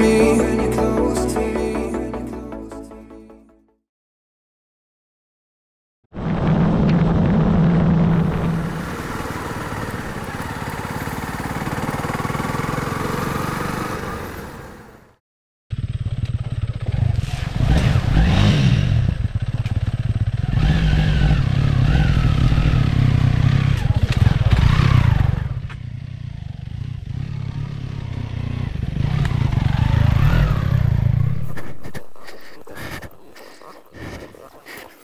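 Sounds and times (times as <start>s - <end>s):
motorcycle engine revving: 6.3s - 31.9s.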